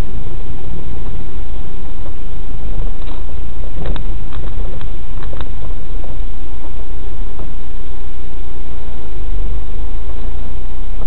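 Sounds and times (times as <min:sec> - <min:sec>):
car engine and road noise: 0:00.0 - 0:11.0.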